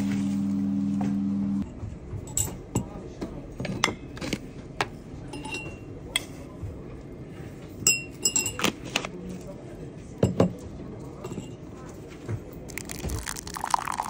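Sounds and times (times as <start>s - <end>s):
glass and crockery clinking: 12.7s - 14.0s.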